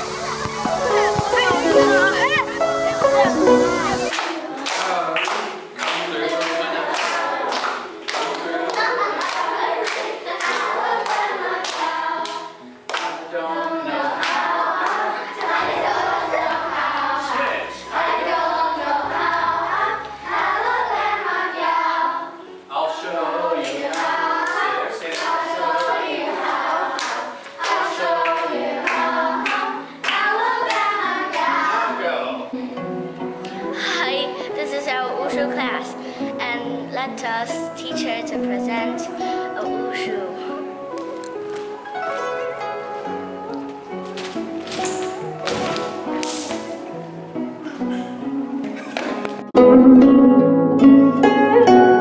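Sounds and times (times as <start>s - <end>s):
children singing: 0.0s - 5.1s, 6.0s - 32.3s
rhythmic hand claps: 0.2s - 13.2s, 14.1s - 17.2s, 23.6s - 26.0s, 26.8s - 31.6s.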